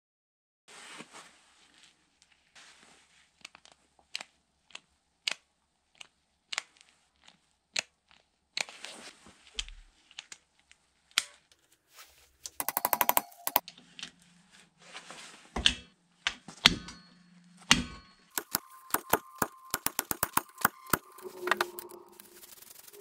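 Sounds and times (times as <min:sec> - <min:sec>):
socket ratchet clicking: 0:12.6 - 0:13.6.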